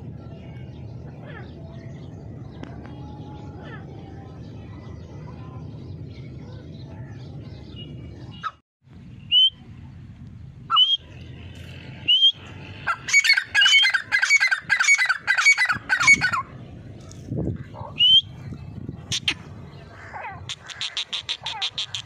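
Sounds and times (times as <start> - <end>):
francolin harsh repeated calls: 19.2 - 22.0.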